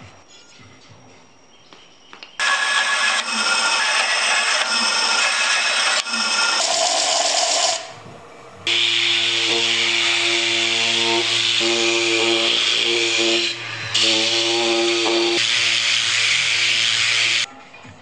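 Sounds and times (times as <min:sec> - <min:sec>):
palm sander on wood: 0:02.4 - 0:07.9, 0:08.7 - 0:17.5
disc sander running: 0:02.4 - 0:08.0, 0:08.7 - 0:17.5.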